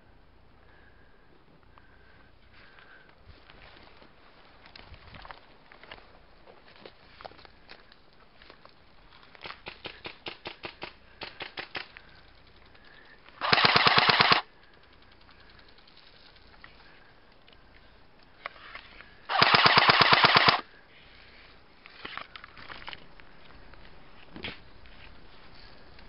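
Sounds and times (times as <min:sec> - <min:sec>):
airsoft gun full-auto bursts: 0:09.8 - 0:11.9, 0:13.4 - 0:14.5, 0:19.3 - 0:20.7.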